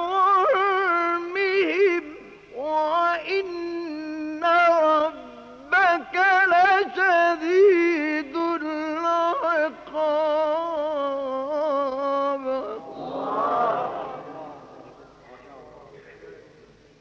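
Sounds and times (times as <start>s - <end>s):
man reciting melodically: 0.0s - 17.0s
crowd voices responding: 12.6s - 16.8s.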